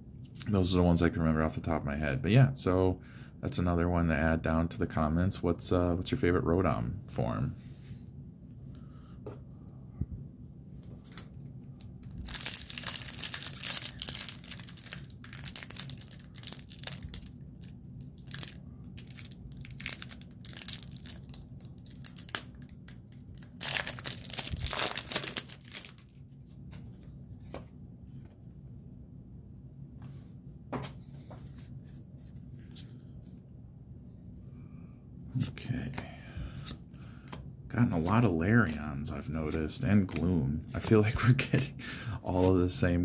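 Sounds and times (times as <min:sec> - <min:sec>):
foil wrapper tearing and crinkling: 0:12.0 - 0:26.2
cards clicking and rustling: 0:39.4 - 0:40.9.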